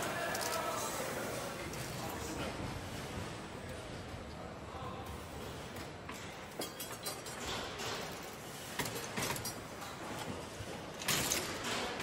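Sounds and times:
metallic clicks and clatters: 0:06.1 - 0:09.9.

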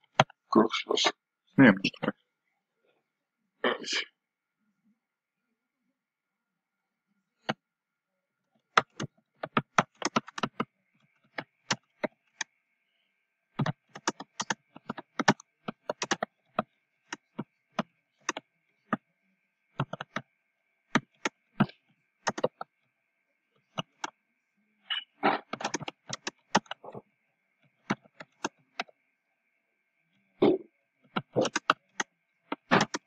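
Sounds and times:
keyboard typing: 0:08.6 - 0:12.5, 0:13.6 - 0:19.0, 0:19.8 - 0:20.3, 0:20.9 - 0:22.7, 0:23.7 - 0:24.2, 0:24.9 - 0:27.0, 0:27.8 - 0:28.9, 0:30.4 - 0:33.0.

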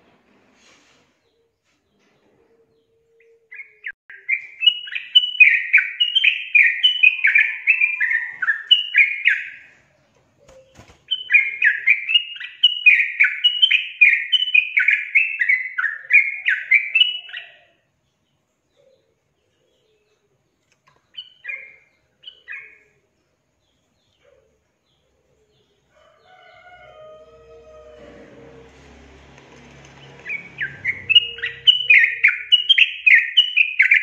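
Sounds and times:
bird singing bubbly chattering phrases: 0:30.3 - 0:34.0.

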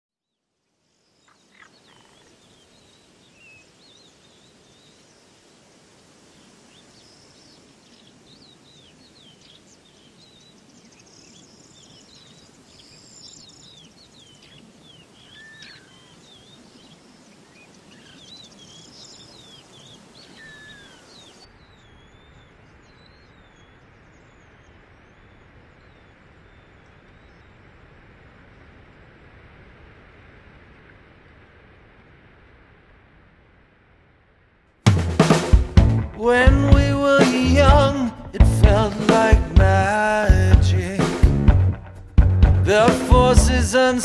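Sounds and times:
outdoor background hiss: 0:00.2 - 0:44.0
birds chirping and calling: 0:08.6 - 0:24.5.

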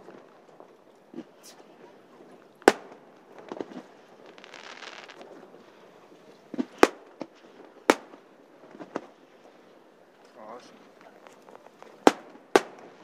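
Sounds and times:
loud firework bangs: 0:02.6 - 0:05.2, 0:06.6 - 0:07.2, 0:07.8 - 0:09.1, 0:12.0 - 0:13.0
fireworks popping and crackling: 0:02.6 - 0:05.3, 0:06.5 - 0:09.1, 0:11.0 - 0:13.0.

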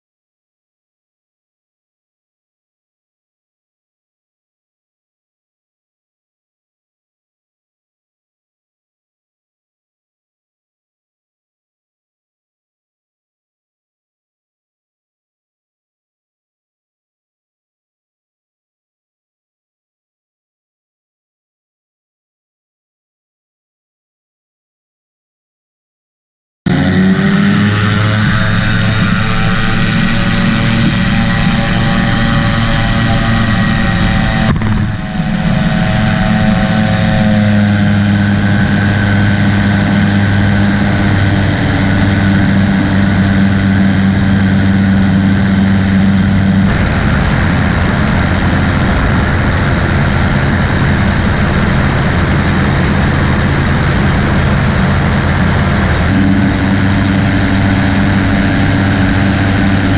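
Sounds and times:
engine and propeller running: 0:26.7 - 0:59.9.

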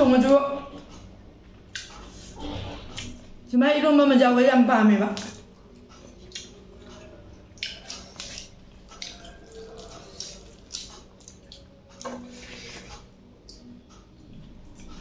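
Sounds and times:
chewing and biting: 0:07.6 - 0:12.1.

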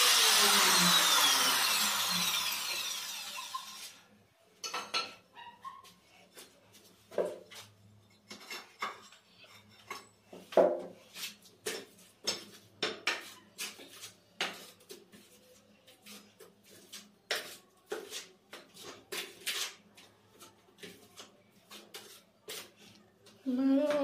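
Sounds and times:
trowel scraping mortar: 0:11.1 - 0:23.0.

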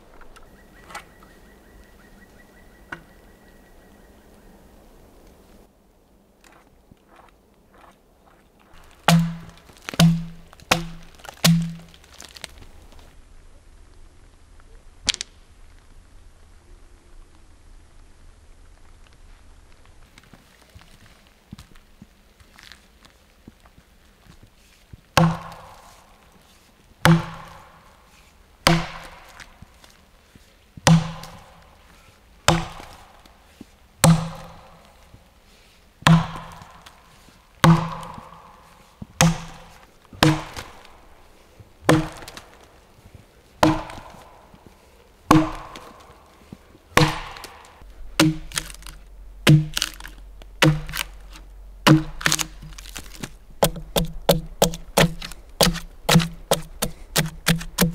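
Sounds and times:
axe chopping log: 0:08.8 - 0:12.5, 0:25.2 - 0:25.9, 0:27.0 - 0:27.8, 0:28.6 - 0:29.6, 0:30.8 - 0:31.6, 0:32.5 - 0:33.3, 0:34.0 - 0:34.9, 0:36.0 - 0:37.0, 0:37.6 - 0:38.5, 0:39.2 - 0:40.9, 0:41.8 - 0:42.7, 0:43.6 - 0:44.4, 0:45.3 - 0:46.2, 0:46.9 - 0:57.9.

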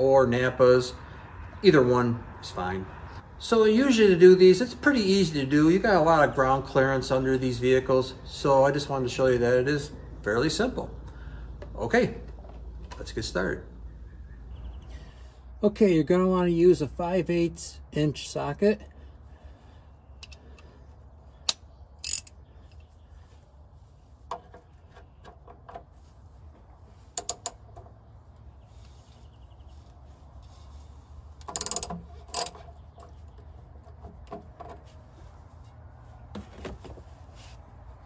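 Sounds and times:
ratchet wrench clicking: 0:21.5 - 0:22.4, 0:31.4 - 0:32.6.

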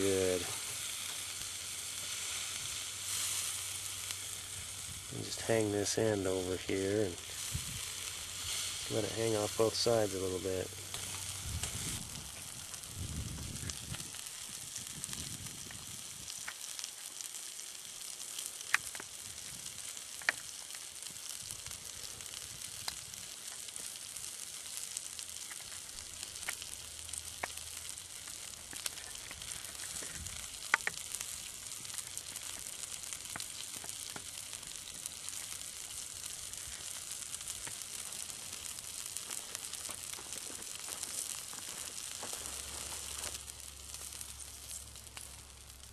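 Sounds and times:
steak sizzling on a grill: 0:00.0 - 0:45.9
sharp pops: 0:18.3 - 0:21.3, 0:25.4 - 0:45.6.

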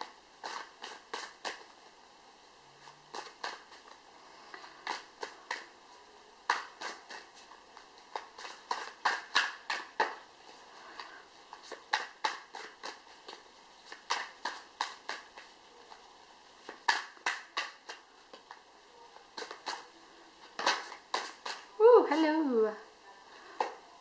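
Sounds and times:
cards being shuffled: 0:00.4 - 0:01.7, 0:02.8 - 0:05.7, 0:06.4 - 0:10.2, 0:10.9 - 0:16.0, 0:16.6 - 0:18.7, 0:19.3 - 0:21.7.

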